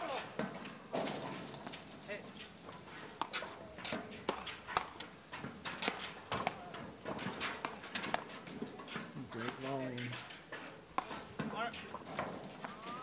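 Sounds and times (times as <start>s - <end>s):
paddles striking ball: 3.0s - 8.7s, 10.9s - 13.0s
ball bouncing on metal deck: 3.1s - 8.7s.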